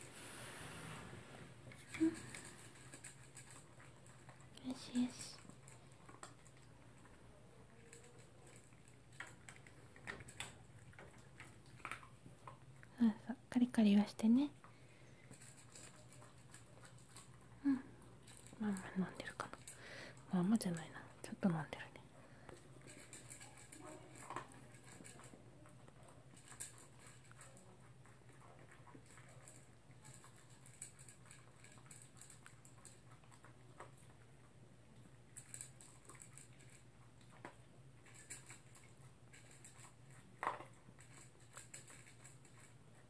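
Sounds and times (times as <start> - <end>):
dog eating kibble from plastic bowl: 1.5 - 12.9, 14.0 - 43.0.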